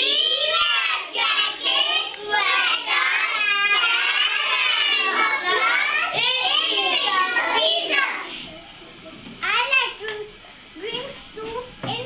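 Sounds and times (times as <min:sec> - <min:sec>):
children singing: 0:00.0 - 0:08.0.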